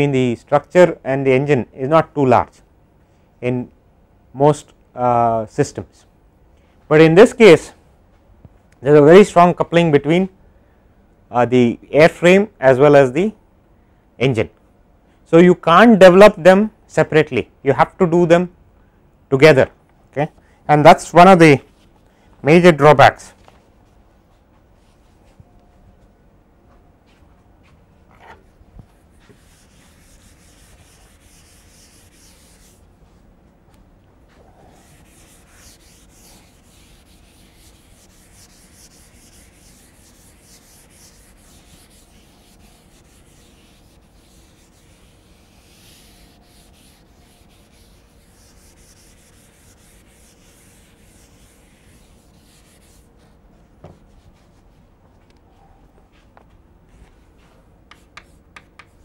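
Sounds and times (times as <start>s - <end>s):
eraser rubbing on blackboard: 28.2s - 32.8s, 34.6s - 53.3s.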